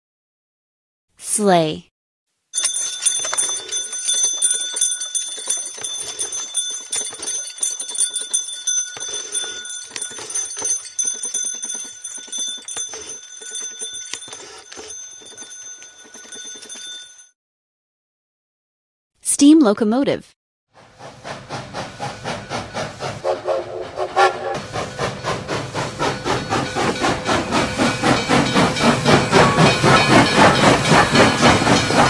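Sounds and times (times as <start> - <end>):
sleigh bells jingling: 2.6 - 17.3.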